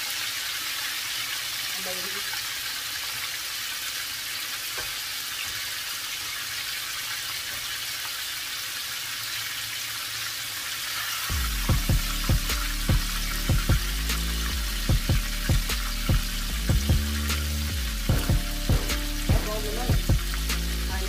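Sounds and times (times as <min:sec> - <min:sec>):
oil sizzling while frying: 0:00.0 - 0:21.0
music with heavy beat: 0:11.3 - 0:21.0.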